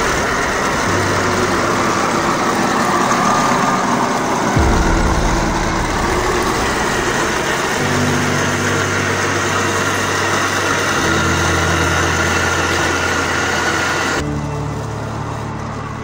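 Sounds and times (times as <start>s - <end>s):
simulated engine rumble: 4.6s - 9.7s.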